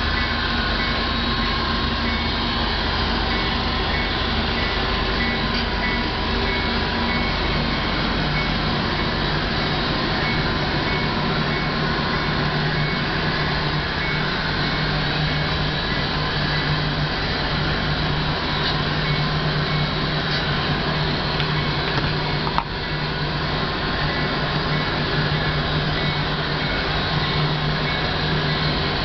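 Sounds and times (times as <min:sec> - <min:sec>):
low steady tone: 0:00.0 - 0:29.0
model train rolling hum: 0:00.0 - 0:29.0.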